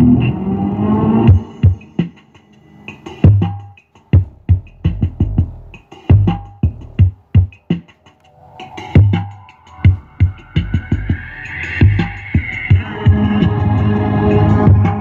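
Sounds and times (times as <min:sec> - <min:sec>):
electronic music with drum-machine beat: 0:00.0 - 0:15.0
deep bass thuds: 0:04.2 - 0:07.5.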